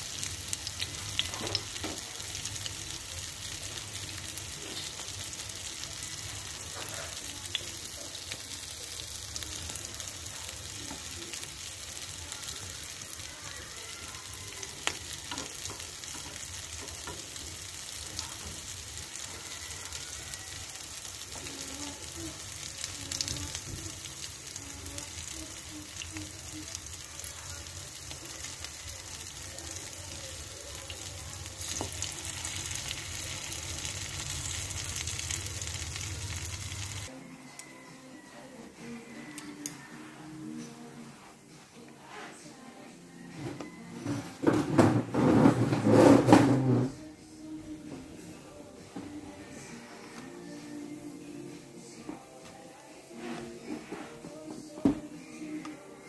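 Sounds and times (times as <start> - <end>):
hot oil sizzling: 0.0 - 37.1
oil crackling and popping: 28.0 - 37.1.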